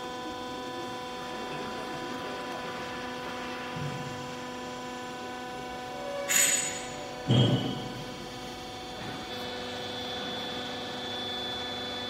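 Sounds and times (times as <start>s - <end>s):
electric motor hum: 0.0s - 12.0s.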